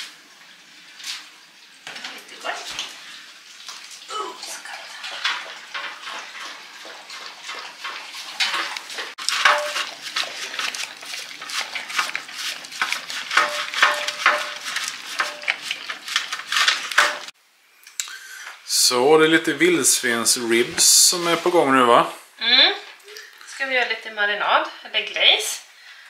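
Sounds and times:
dishes and utensils clattering: 0:04.7 - 0:17.3.

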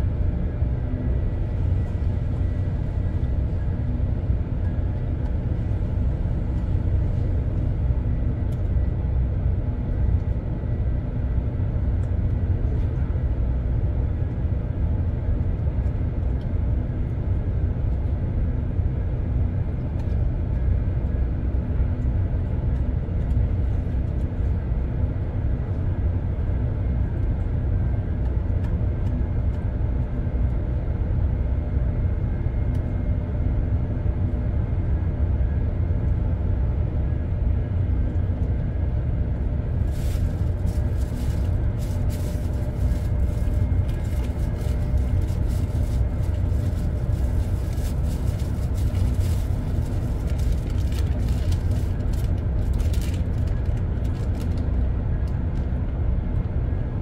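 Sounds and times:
constant hum: 0:00.0 - 0:57.0
ship machinery rumble: 0:33.3 - 0:57.0.

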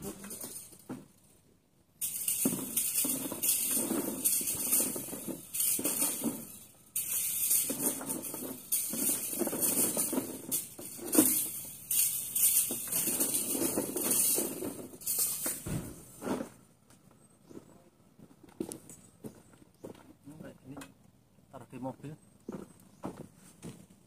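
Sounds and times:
rake scraping gravel and rubble: 0:00.0 - 0:01.4, 0:02.0 - 0:16.6.

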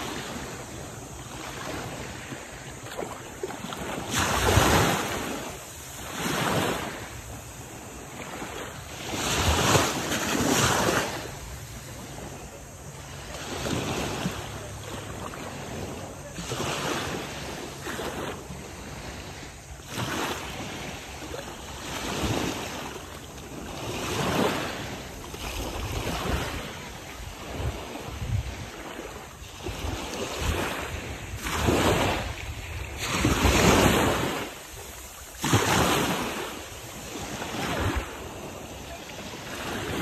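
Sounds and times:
small sea waves washing: 0:00.0 - 0:40.0
wind buffeting microphone: 0:25.5 - 0:28.8.

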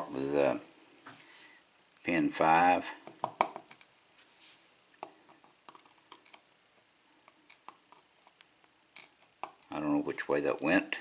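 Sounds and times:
small metallic clicks and taps: 0:05.0 - 0:06.4, 0:07.2 - 0:09.8.

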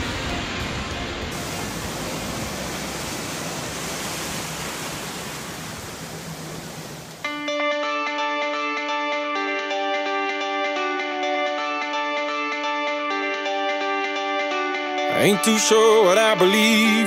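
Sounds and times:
ocean waves breaking: 0:00.0 - 0:07.4.

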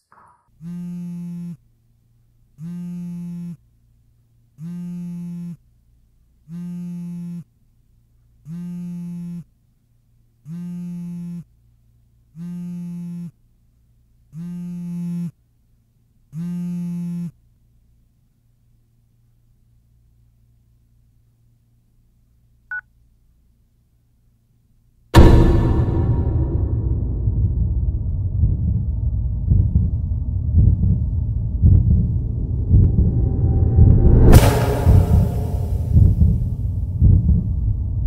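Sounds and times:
faint steady hum: 0:00.0 - 0:25.2
phone buzzing: 0:00.6 - 0:01.6, 0:02.6 - 0:03.6, 0:04.6 - 0:05.6, 0:06.5 - 0:07.5, 0:08.4 - 0:09.5, 0:10.4 - 0:11.5, 0:12.4 - 0:13.4, 0:14.3 - 0:15.4, 0:16.3 - 0:17.4.

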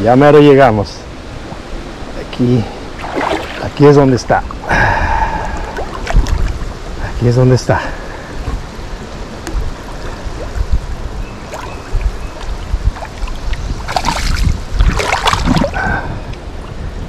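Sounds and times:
low rumble on microphone: 0:01.5 - 0:07.2, 0:07.8 - 0:17.0
person wading through water: 0:02.8 - 0:03.8, 0:04.5 - 0:07.0, 0:09.1 - 0:16.5
loud water splashes: 0:02.8 - 0:06.7, 0:11.5 - 0:16.3.

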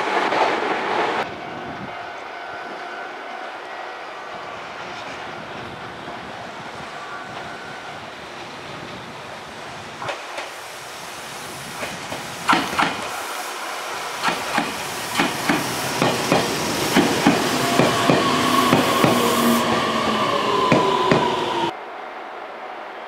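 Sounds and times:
train rolling rumble: 0:00.0 - 0:21.8
train wheels clacking on rail joints: 0:11.8 - 0:13.2, 0:14.2 - 0:19.3, 0:20.6 - 0:21.4.

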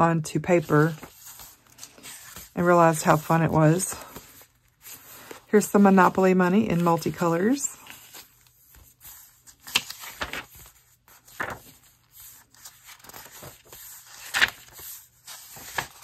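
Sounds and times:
paper pages rustling: 0:00.5 - 0:16.0.

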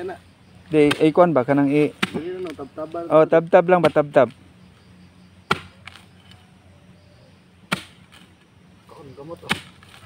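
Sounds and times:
sharp chopping strikes: 0:00.7 - 0:02.6, 0:03.7 - 0:04.3, 0:05.5 - 0:06.1, 0:07.6 - 0:08.3, 0:09.4 - 0:10.0.

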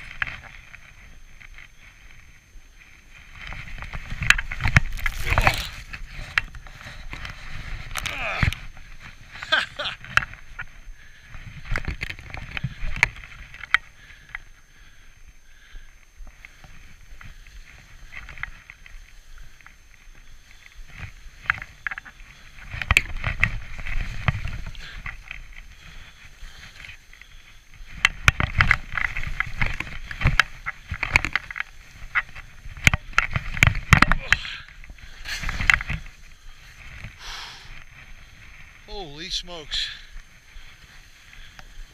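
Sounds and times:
wind rumble on microphone: 0:16.2 - 0:38.9
skis swishing through snow: 0:35.0 - 0:41.9.

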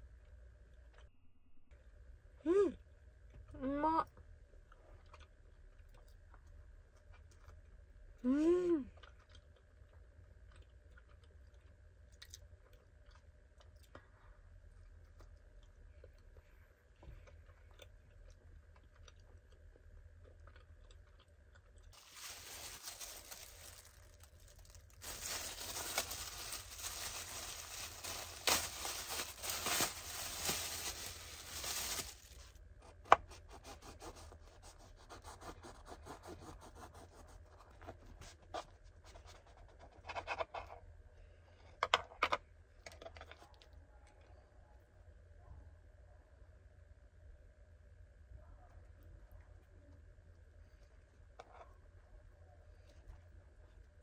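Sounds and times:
cling wrap crinkling: 0:22.0 - 0:32.6.

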